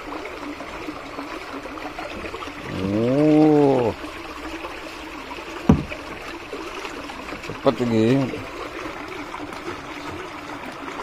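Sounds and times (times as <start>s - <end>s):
water pouring and bubbling: 0.0s - 11.0s
sharp knock: 5.7s - 6.0s.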